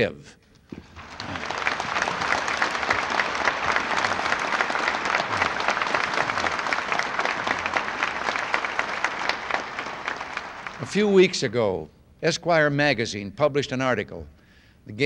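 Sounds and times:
audience applauding: 0.7s - 11.4s.

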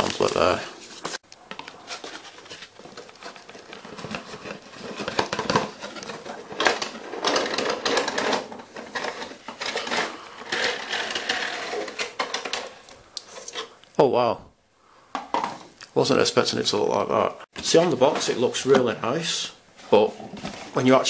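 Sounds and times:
cardboard box rustling and scraping: 0.1s - 7.6s.

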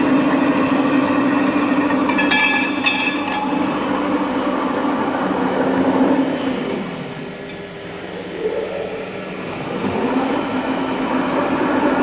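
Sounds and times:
pipe cutting machine humming: 0.0s - 12.0s
high-pitched metallic squeals: 2.1s - 4.0s.

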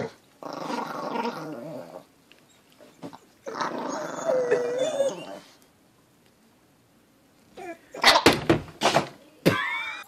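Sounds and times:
small dog growling: 0.0s - 2.1s, 3.4s - 5.6s
dog whining: 0.0s - 5.6s, 7.6s - 8.2s.

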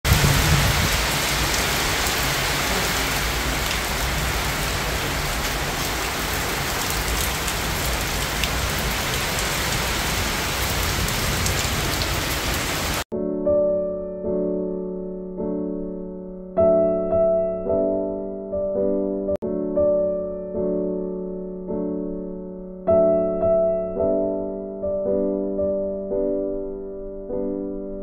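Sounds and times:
heavy rain on paving and foliage: 0.0s - 13.1s.

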